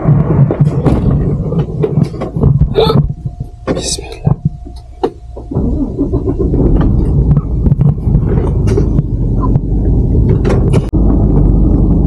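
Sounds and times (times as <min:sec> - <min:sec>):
knocks and rattles: 0:00.0 - 0:11.6
diesel truck engine rumbling: 0:00.0 - 0:12.0.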